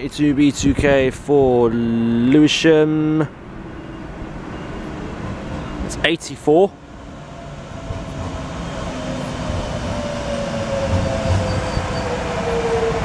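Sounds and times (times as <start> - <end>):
train running noise: 3.5 - 13.0
falling pitch whine: 6.9 - 13.0.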